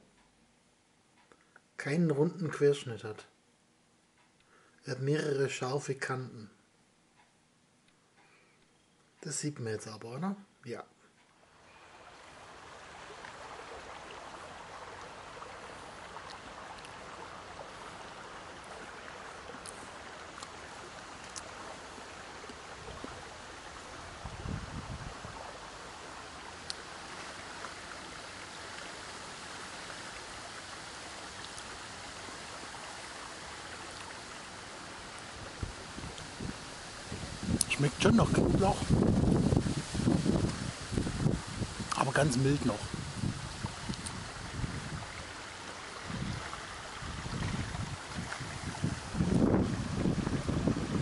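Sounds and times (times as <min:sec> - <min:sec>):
faint clicks: 0:01.1 - 0:01.7, 0:43.9 - 0:44.2
rushing water or wind: 0:11.4 - 0:51.0.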